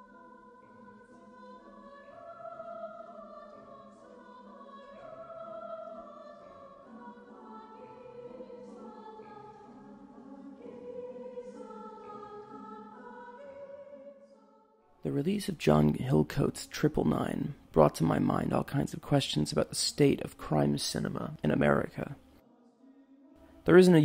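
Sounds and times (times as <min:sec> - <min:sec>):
choir singing slow chords: 0:00.0 - 0:15.0, 0:22.2 - 0:23.8.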